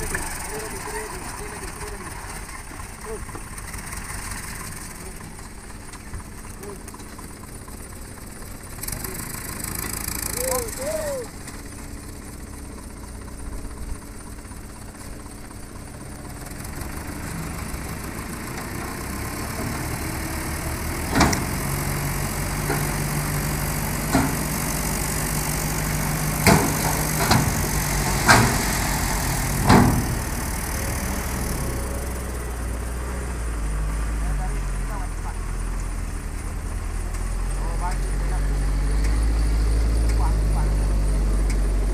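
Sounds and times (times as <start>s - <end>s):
diesel truck engine revving: 0.0s - 41.9s
metal clanks: 26.4s - 28.7s.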